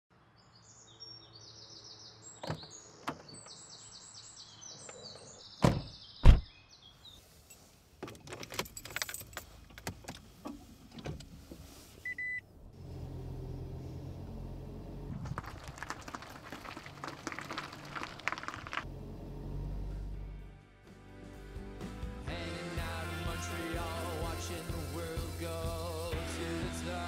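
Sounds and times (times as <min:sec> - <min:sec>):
small birds chirping: 0:00.3 - 0:07.6
clicking and rattling in a car: 0:08.0 - 0:11.7
car engine running hum: 0:12.5 - 0:20.5.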